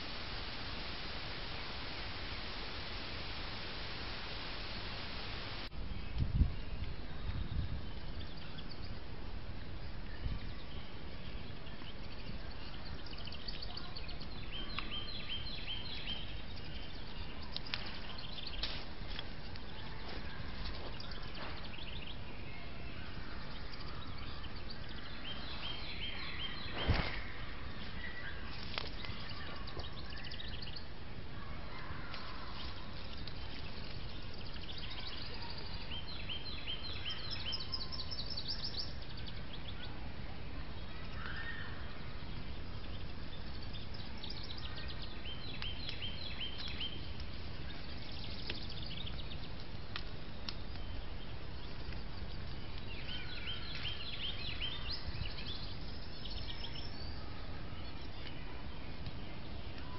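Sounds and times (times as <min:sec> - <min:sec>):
camera hiss: 0:00.0 - 0:05.7
songbird singing: 0:00.0 - 0:59.9.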